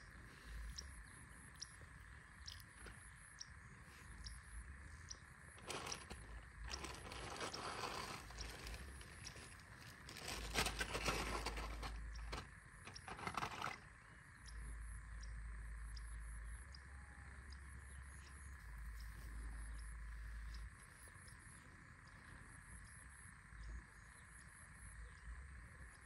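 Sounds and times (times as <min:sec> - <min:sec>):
insects: 0:00.0 - 0:26.0
rustling and scraping: 0:05.6 - 0:13.8.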